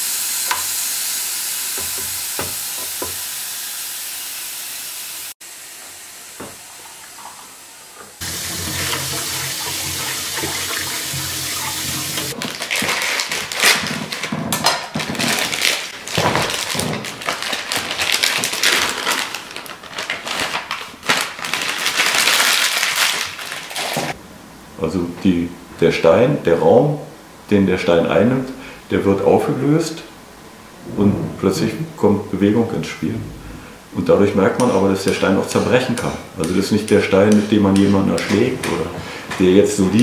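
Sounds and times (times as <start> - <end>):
coffee machine hissing: 0.0 - 12.4
knife slitting plastic packet: 12.3 - 24.2
plastic packet crackling: 12.3 - 24.2.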